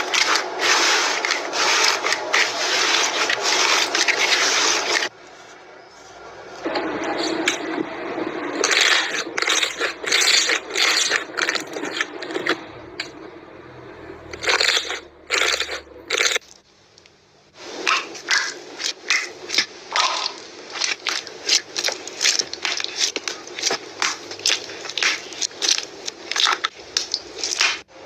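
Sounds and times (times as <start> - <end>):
hands squishing slime: 0.0 - 5.1, 8.6 - 13.2, 17.9 - 27.9.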